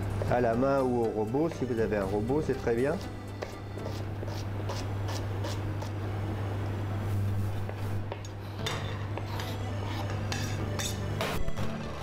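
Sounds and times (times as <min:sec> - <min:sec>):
blade scraping cutting board: 0:03.0 - 0:06.0, 0:07.2 - 0:11.1
knife chopping on cutting board: 0:03.0 - 0:06.0.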